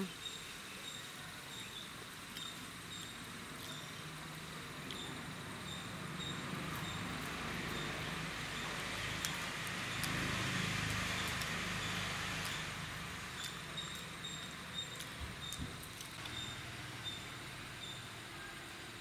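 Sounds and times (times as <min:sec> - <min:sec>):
outdoor background noise: 0:00.0 - 0:19.0
faint high-pitched chirps: 0:16.2 - 0:18.9.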